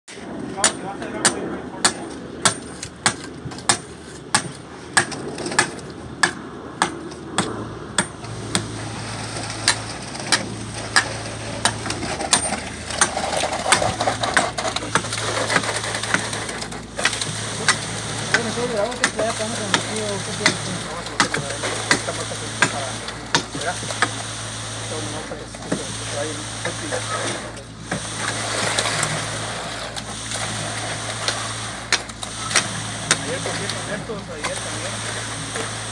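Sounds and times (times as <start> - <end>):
hammer striking steel rebar: 0.6 - 8.8, 9.4 - 24.1
engine hum: 1.4 - 35.9.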